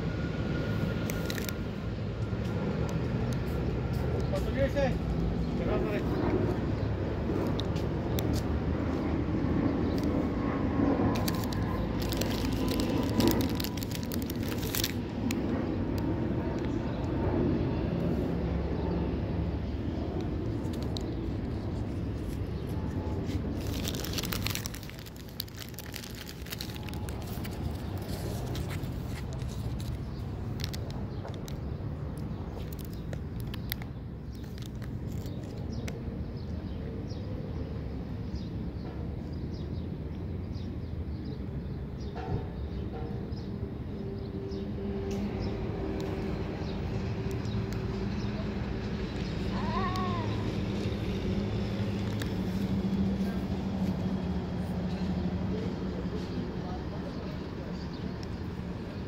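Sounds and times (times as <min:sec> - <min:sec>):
low rumble of traffic: 0:00.0 - 0:59.0
scattered clicks and rustles: 0:11.1 - 0:15.5.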